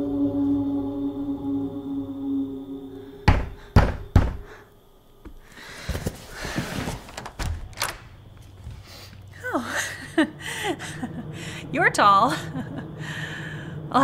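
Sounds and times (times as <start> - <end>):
musical drone: 0.0 - 3.6
knocks on a door: 3.3 - 4.5
shuffling and light clatter: 5.3 - 9.4.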